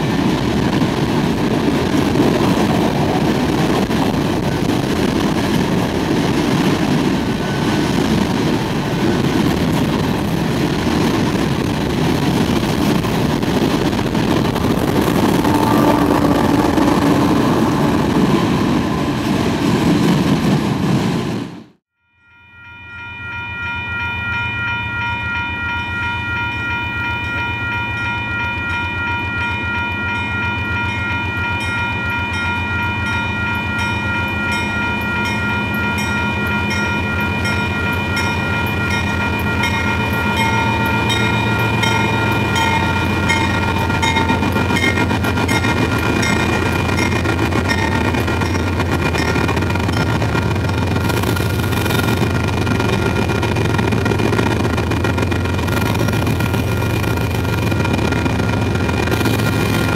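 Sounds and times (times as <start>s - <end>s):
train wheels rattling on rails: 0.0s - 21.8s, 23.2s - 59.9s
diesel engine rumble: 0.2s - 20.9s
locomotive air horn blast: 14.6s - 19.0s.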